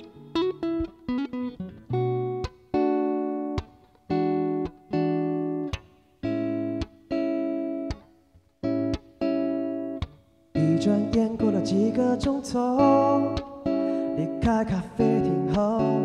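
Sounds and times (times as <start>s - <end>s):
acoustic guitar: 0.0s - 16.0s.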